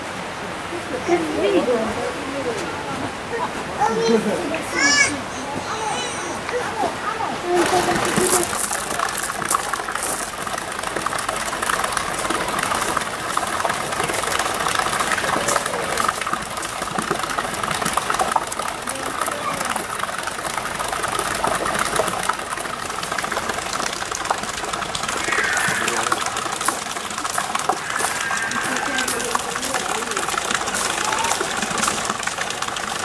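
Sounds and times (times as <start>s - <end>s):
fountain water rushing: 0.0s - 33.0s
faint voices: 0.6s - 10.6s, 12.1s - 16.6s, 18.3s - 20.0s, 24.8s - 33.0s.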